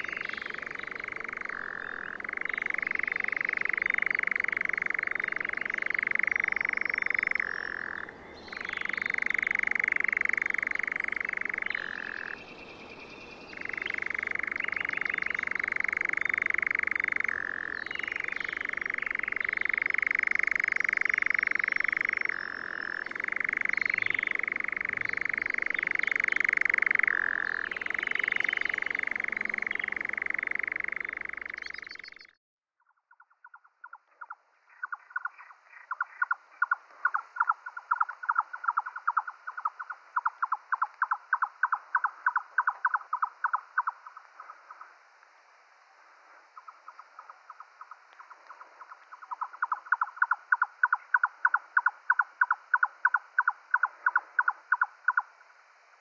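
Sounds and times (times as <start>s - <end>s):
nightjar churring trill: 0.0s - 32.3s, 46.6s - 55.2s.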